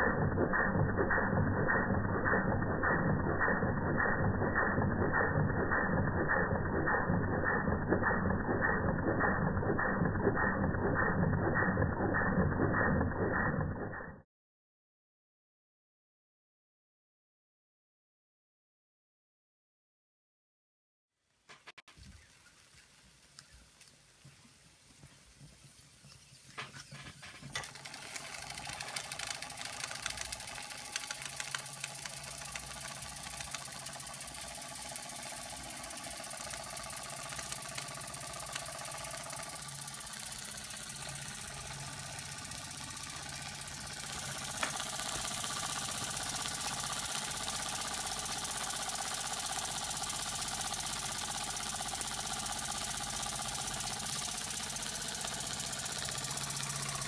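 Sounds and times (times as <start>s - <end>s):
toy steam engine clatter: 0.0s - 14.2s, 26.6s - 57.0s.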